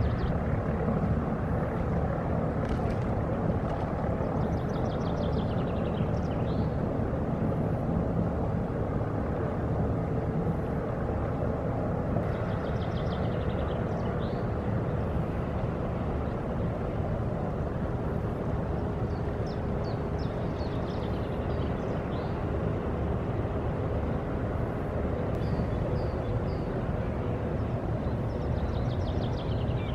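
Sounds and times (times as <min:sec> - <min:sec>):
low harbour rumble: 0:00.0 - 0:12.7.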